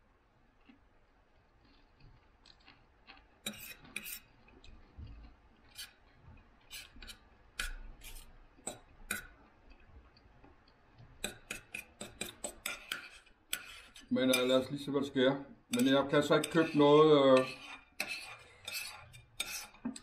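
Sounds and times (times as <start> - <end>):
knife and fork clicking on plate: 11.2 - 13.8.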